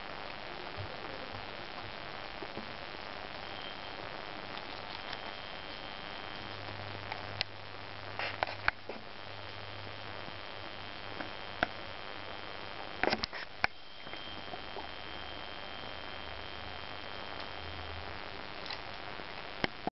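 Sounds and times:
steady low hiss: 0:00.0 - 0:19.9
guinea pigs crunching vegetables: 0:04.4 - 0:07.5, 0:13.0 - 0:19.8.

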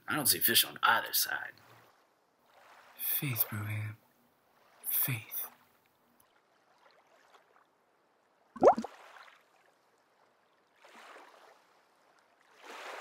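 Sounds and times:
faint splashy rustle: 0:04.4 - 0:13.0
fishing bobber plopping into water: 0:08.6 - 0:08.9.

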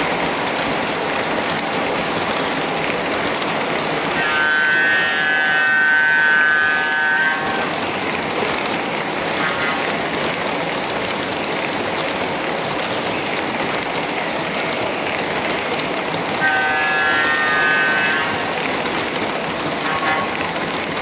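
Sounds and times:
model train rolling on track: 0:00.0 - 0:21.0
wheels clicking: 0:00.0 - 0:21.0
model locomotive electronic horn: 0:04.0 - 0:07.8, 0:09.4 - 0:10.0, 0:16.4 - 0:18.9, 0:19.7 - 0:20.6.

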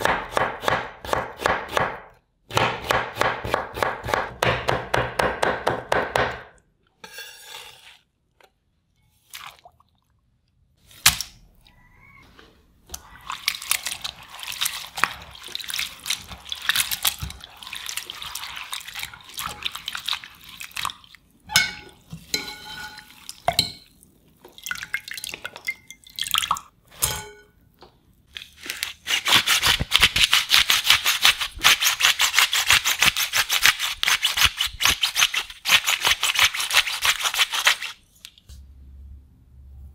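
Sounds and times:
knife chopping on wooden board: 0:00.0 - 0:06.5
water dripping: 0:23.1 - 0:26.8.

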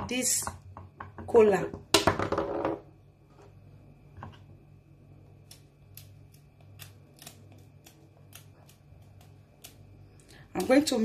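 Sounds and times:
knife scraping nut skin: 0:05.4 - 0:10.8.

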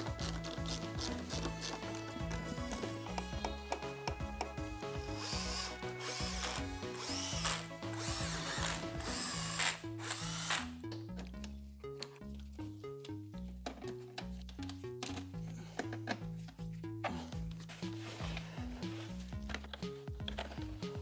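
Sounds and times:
cordless drill driving screws: 0:05.0 - 0:10.7.

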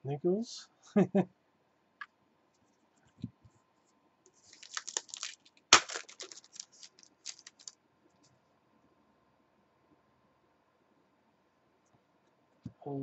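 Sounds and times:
foil wrapper tearing and crinkling: 0:04.4 - 0:07.7.

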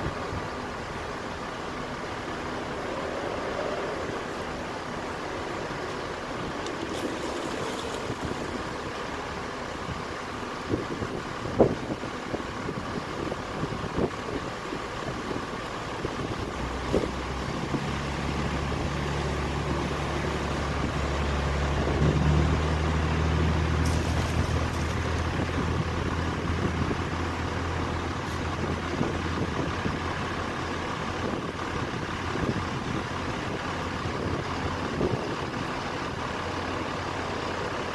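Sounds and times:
boat engine humming: 0:00.0 - 0:37.9
wind: 0:00.0 - 0:37.9
water wash: 0:05.8 - 0:09.4.

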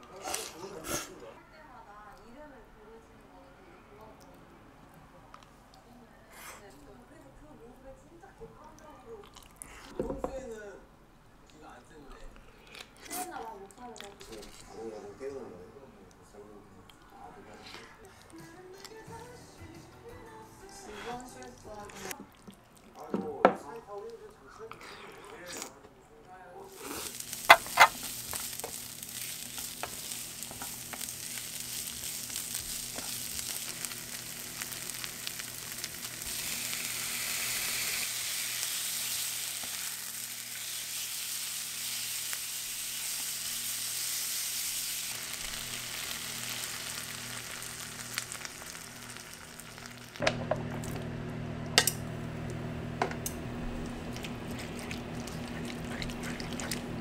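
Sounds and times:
wet stirring of spaghetti: 0:20.7 - 0:25.4, 0:53.7 - 0:57.0
vegetables sizzling in oil: 0:26.7 - 0:57.0.

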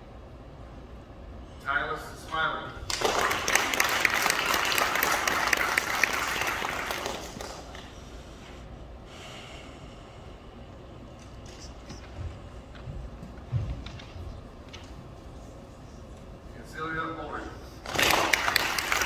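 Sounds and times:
audience applauding: 0:02.9 - 0:08.0, 0:17.8 - 0:19.0.

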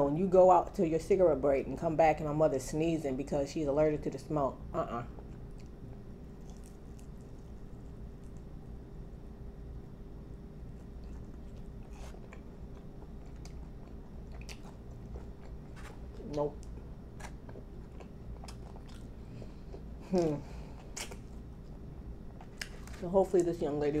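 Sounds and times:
chewing and crunching: 0:05.1 - 0:08.8, 0:10.6 - 0:23.6.

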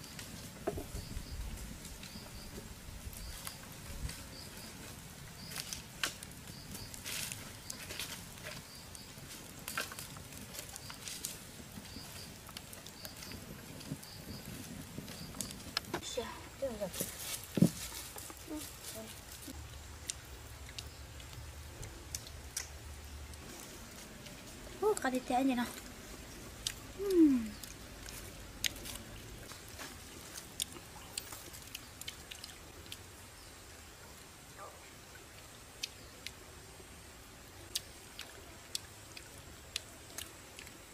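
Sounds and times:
wood fire crackling and popping: 0:00.0 - 0:34.4
chewing fish: 0:03.2 - 0:16.0, 0:17.4 - 0:33.2, 0:37.6 - 0:40.9.

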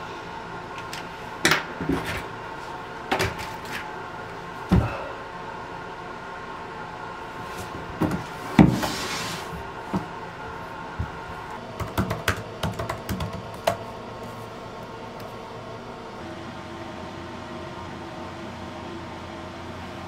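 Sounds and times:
laptop keyboard typing: 0:11.8 - 0:13.8.

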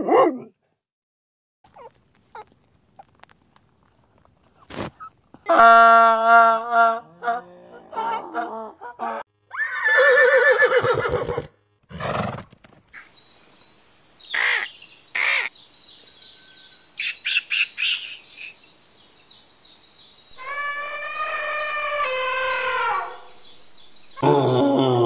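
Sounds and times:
eagle calling: 0:20.4 - 0:23.4.

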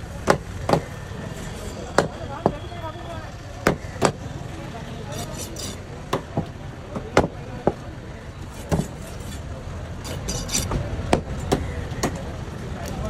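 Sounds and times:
knife chopping on wooden block: 0:08.5 - 0:09.4.

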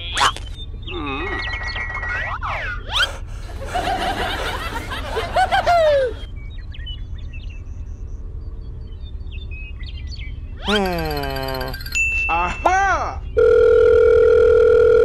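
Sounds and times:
faint bird chirps: 0:00.0 - 0:03.1
cartoon whistling glides: 0:00.0 - 0:03.2, 0:10.6 - 0:12.0
high-pitched sped-up giggling: 0:00.9 - 0:06.3, 0:10.6 - 0:12.8.

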